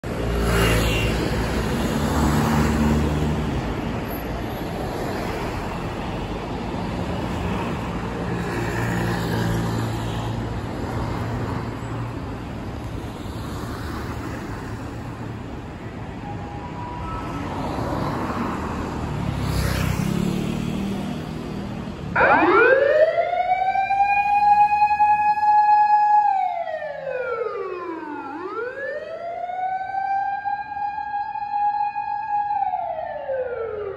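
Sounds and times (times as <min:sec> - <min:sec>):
street traffic passing: 0:00.0 - 0:33.9
electronic siren wailing: 0:22.2 - 0:33.9.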